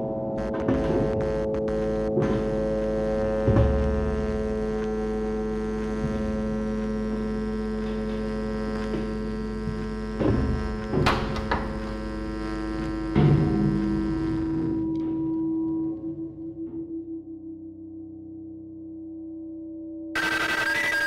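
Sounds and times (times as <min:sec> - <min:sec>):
steady electrical hum: 0:00.4 - 0:15.0.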